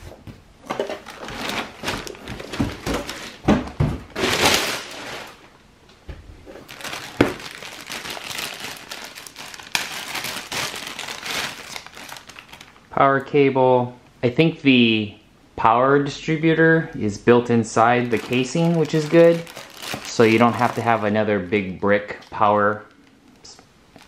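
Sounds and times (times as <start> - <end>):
plastic packaging crinkling: 0.7 - 5.5, 6.5 - 12.9, 17.9 - 21.3.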